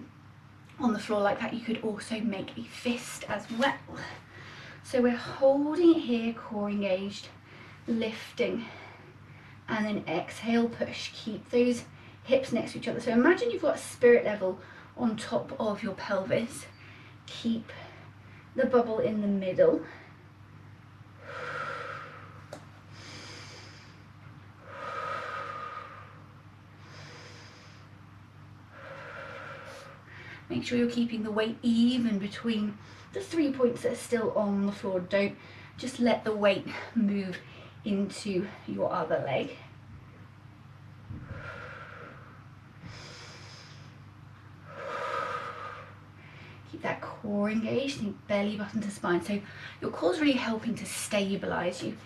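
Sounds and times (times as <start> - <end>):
woman breathing rhythmically: 3.8 - 6.1, 7.3 - 9.7, 11.8 - 12.3, 14.5 - 15.0, 16.6 - 18.6, 19.7 - 30.7, 32.7 - 33.2, 35.3 - 35.8, 36.6 - 38.7, 39.4 - 46.8, 49.3 - 49.9.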